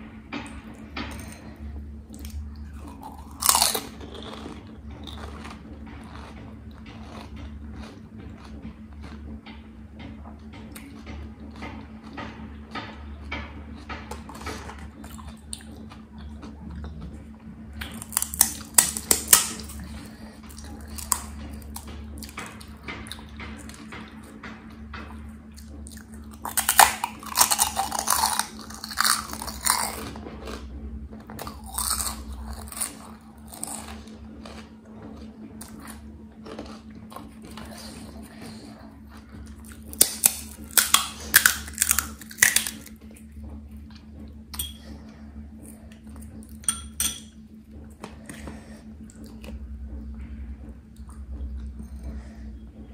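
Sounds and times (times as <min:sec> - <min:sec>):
chewing crisp shells: 0:02.2 - 0:09.4, 0:17.8 - 0:23.8, 0:25.5 - 0:30.6, 0:31.3 - 0:43.1.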